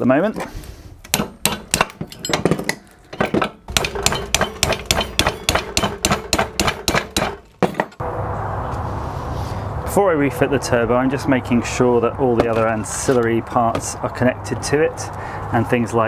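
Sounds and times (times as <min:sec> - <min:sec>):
hammer tapping metal spanner: 0:01.1 - 0:08.0.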